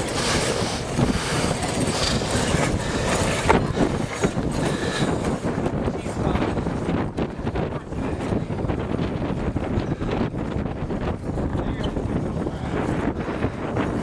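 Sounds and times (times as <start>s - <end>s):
rigging clatter: 0.0s - 7.2s
canvas sails flapping: 0.0s - 14.0s
wind buffeting microphone: 0.0s - 14.0s.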